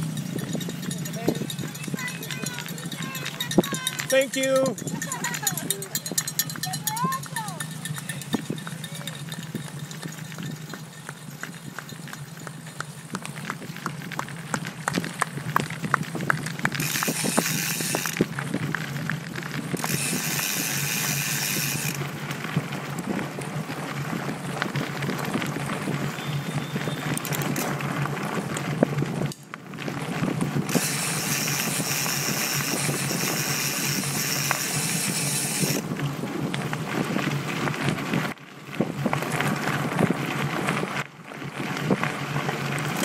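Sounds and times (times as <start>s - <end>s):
bike rattling over bumps: 0.0s - 43.0s
tyres crunching on gravel: 0.0s - 43.0s
wind on microphone: 14.8s - 19.0s, 30.0s - 42.2s.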